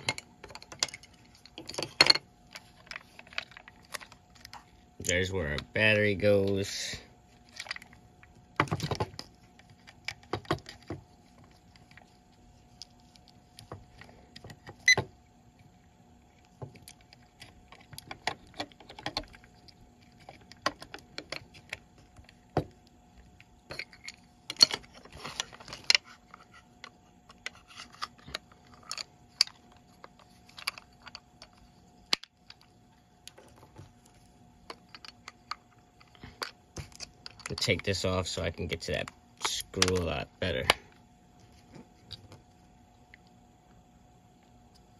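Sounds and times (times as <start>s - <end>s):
faint steady hum: 0.0s - 44.9s
plastic clicks and rattles: 16.6s - 22.8s, 23.7s - 32.7s.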